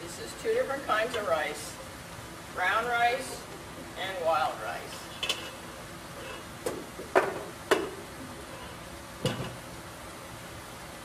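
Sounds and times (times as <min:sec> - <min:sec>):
metal pot and utensils clattering: 0:05.0 - 0:06.5.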